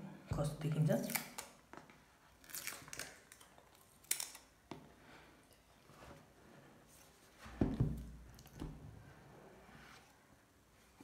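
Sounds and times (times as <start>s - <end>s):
thump: 7.5s - 8.8s.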